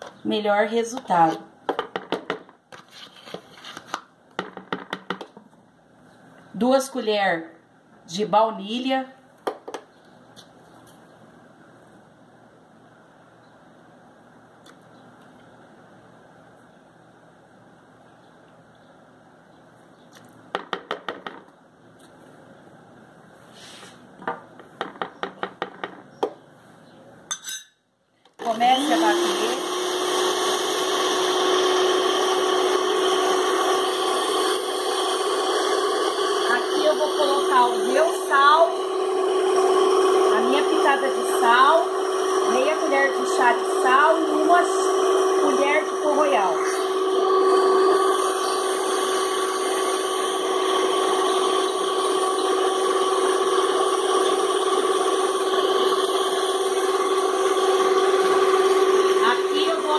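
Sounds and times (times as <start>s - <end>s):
stand mixer motor whirring: 28.4s - 59.9s.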